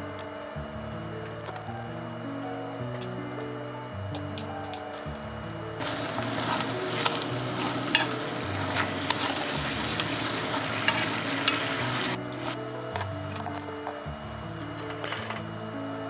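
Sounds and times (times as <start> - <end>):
chopsticks tapping pan: 5.8 - 12.6
food sizzling in frying pan: 5.8 - 12.6.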